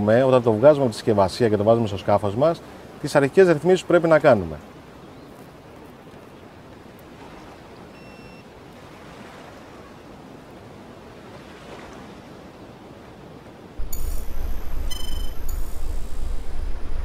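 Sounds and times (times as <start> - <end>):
water ambience: 0.0 - 17.0
wind: 0.0 - 17.0
short electronic beep: 8.0 - 8.4, 13.8 - 17.0.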